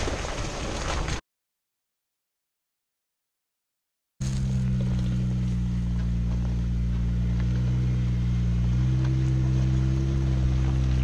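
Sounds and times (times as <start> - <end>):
off-road vehicle engine at low revs: 4.2 - 11.0.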